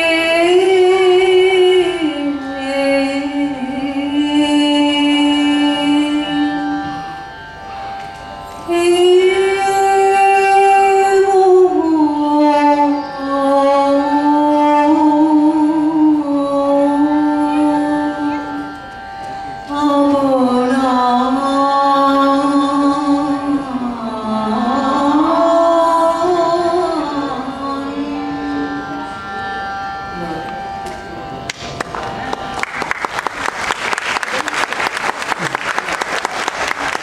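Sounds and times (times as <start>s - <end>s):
woman singing: 0.0s - 7.0s, 8.7s - 18.7s, 19.7s - 29.2s.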